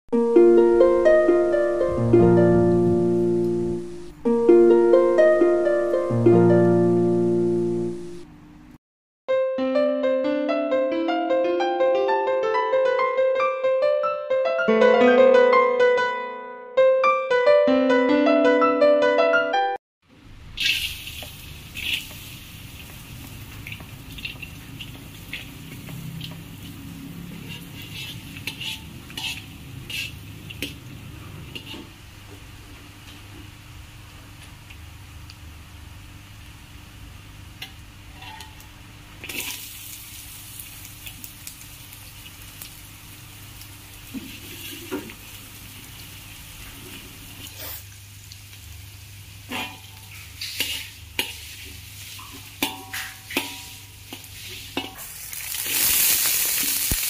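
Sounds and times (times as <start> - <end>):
piano jingle: 0.1 - 8.2, 9.3 - 19.8
plucked string melody: 0.2 - 8.2, 9.3 - 19.8
garlic sizzling in oil: 20.5 - 32.0, 39.2 - 57.0.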